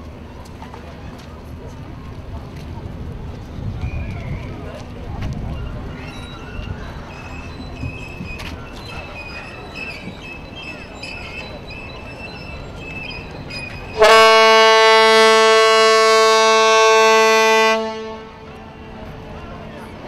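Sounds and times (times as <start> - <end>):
ship horn blast: 14.0 - 19.0.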